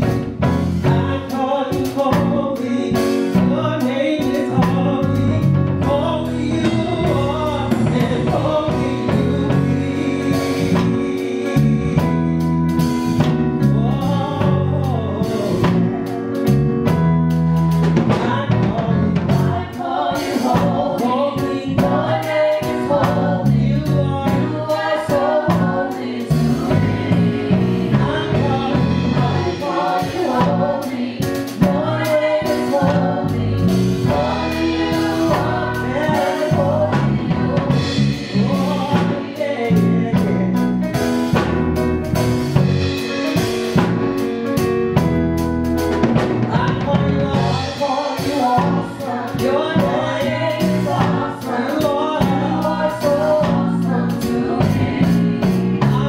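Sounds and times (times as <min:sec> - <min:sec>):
low bass line: 0:00.0 - 0:19.8, 0:20.5 - 0:56.0
drums: 0:00.0 - 0:56.0
women singing gospel song: 0:00.8 - 0:12.2, 0:18.1 - 0:40.6, 0:46.5 - 0:56.0.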